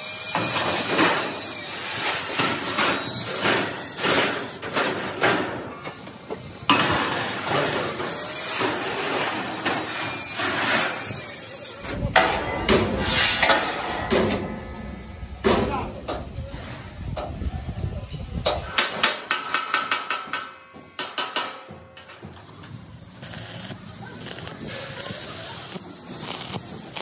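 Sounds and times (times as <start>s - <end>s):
steel plate scraping on steel: 0.2s - 15.6s
metallic clanks and knocks: 12.1s - 16.4s, 18.5s - 22.7s.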